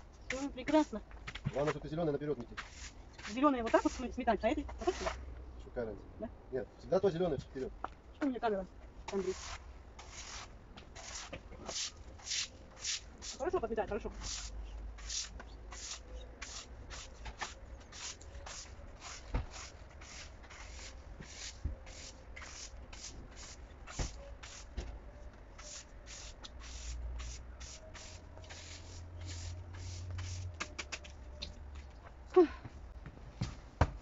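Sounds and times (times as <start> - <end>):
broom sweeping a paved patio: 0.2 - 1.8, 2.4 - 5.2, 9.0 - 24.9, 25.5 - 31.3.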